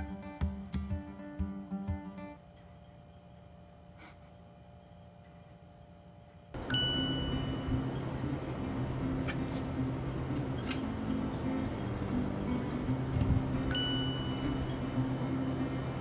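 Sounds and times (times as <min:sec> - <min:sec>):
background music with low notes: 0:00.0 - 0:03.5, 0:06.6 - 0:16.0
faint steady hum: 0:00.0 - 0:16.0
bright ding: 0:06.6 - 0:07.9, 0:13.7 - 0:14.7.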